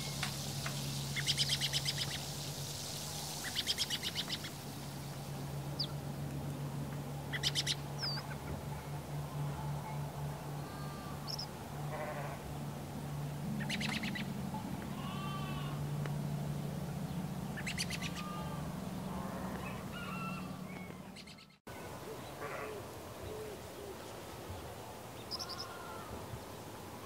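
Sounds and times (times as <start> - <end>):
birds chirping: 0.0 - 6.0, 7.2 - 9.4, 13.5 - 22.4, 25.2 - 26.7
steady low hum: 0.0 - 25.2.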